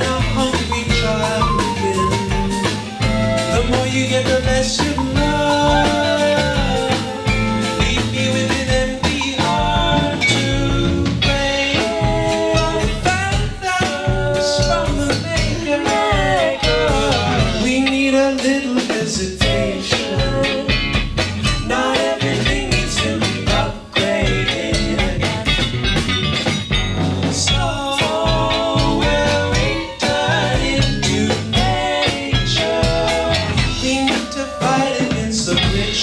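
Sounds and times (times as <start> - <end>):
bass: 0.0 - 36.0
drums: 0.0 - 36.0
live band playing: 0.0 - 36.0.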